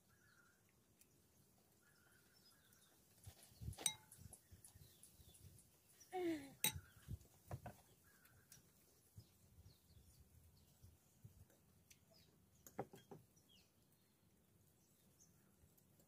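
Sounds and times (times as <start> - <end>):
spoon clinking against plates: 3.8 - 4.3, 6.6 - 6.9.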